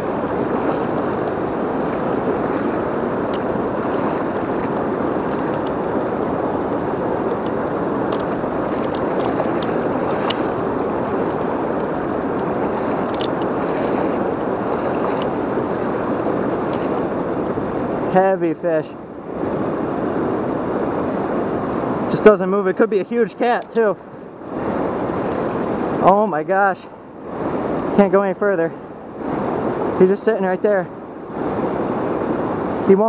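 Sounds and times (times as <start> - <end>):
river rushing over rocks: 0.0 - 23.2
faint ticks: 29.5 - 30.0.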